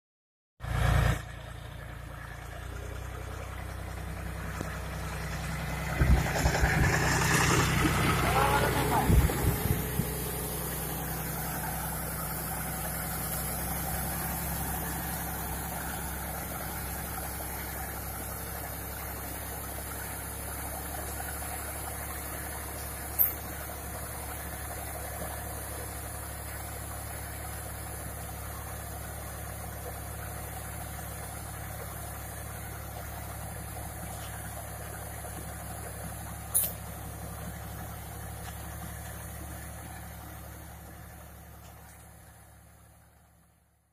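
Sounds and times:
tractor diesel engine running: 0.6s - 43.9s.

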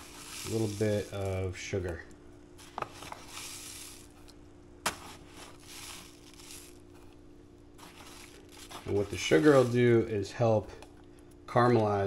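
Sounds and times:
rustling paper bag and sugar: 0.0s - 2.0s, 2.6s - 4.3s, 4.9s - 10.3s
faint steady hum: 0.0s - 12.0s.

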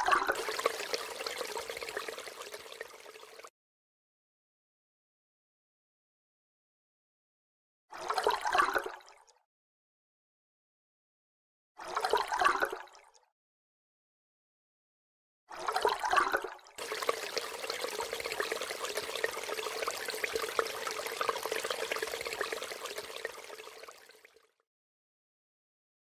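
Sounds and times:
gurgling splash: 0.0s - 3.5s, 15.6s - 24.3s
liquid pouring into a tank: 0.0s - 3.5s, 7.9s - 9.2s, 11.8s - 13.1s, 15.5s - 24.6s.

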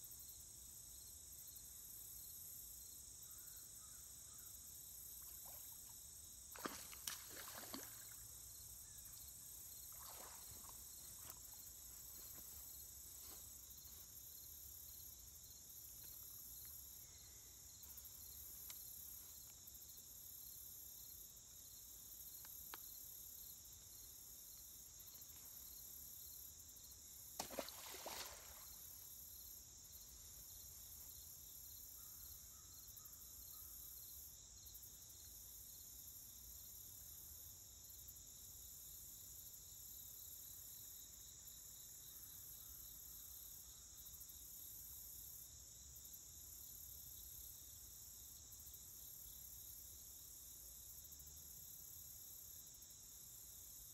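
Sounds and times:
crickets chirping: 0.0s - 53.9s
fish splashing: 6.6s - 8.2s, 27.4s - 28.6s.

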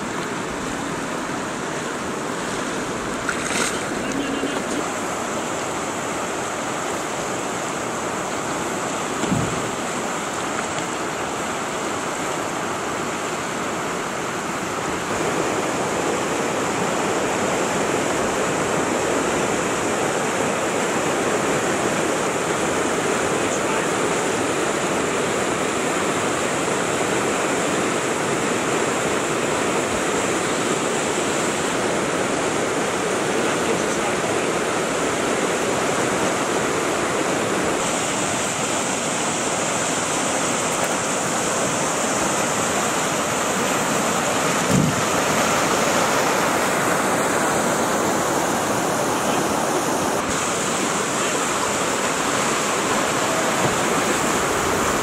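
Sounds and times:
river rapid rushing over rocks: 0.0s - 55.0s.

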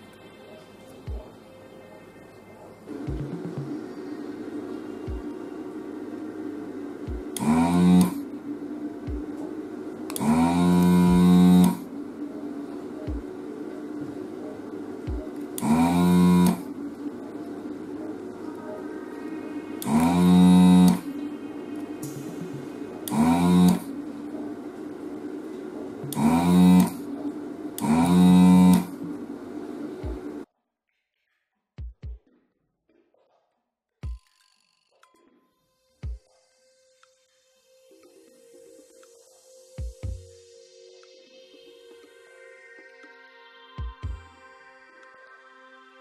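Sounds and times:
vacuum pump motor whirring: 7.0s - 8.3s, 10.0s - 11.9s, 15.1s - 16.8s, 19.8s - 21.1s, 22.0s - 24.8s, 25.8s - 29.2s.

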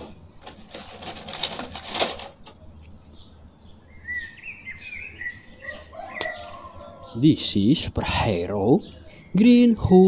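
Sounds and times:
plastic packaging crinkling: 0.4s - 2.6s
bird chirping: 2.7s - 10.0s.

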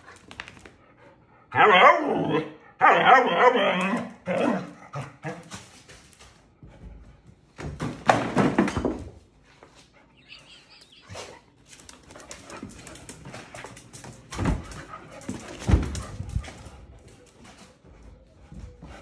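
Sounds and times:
claws clicking on tile floor: 0.0s - 0.8s, 11.6s - 14.3s
dogs barking: 1.5s - 5.4s.

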